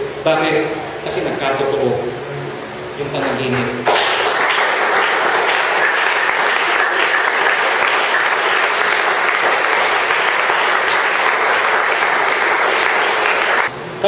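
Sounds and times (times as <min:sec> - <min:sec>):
congregation applauding: 0:03.2 - 0:13.7.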